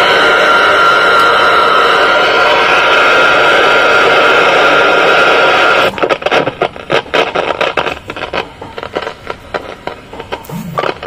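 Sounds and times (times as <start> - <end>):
radio static hiss: 2.7 - 11.0
crackles and clicks: 5.7 - 11.0.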